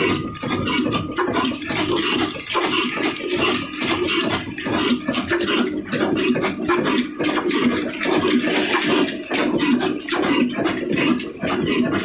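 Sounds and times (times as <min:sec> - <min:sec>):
stationary diesel engine chuffing: 0:00.0 - 0:12.0.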